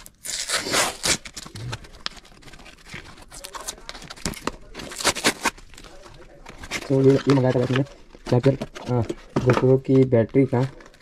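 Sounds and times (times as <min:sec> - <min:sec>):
cardboard tearing: 0:00.0 - 0:05.8.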